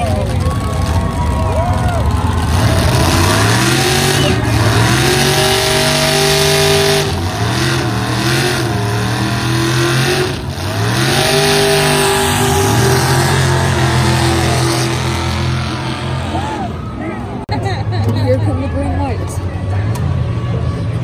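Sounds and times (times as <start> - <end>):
monster truck engine revving: 0.0 - 17.5.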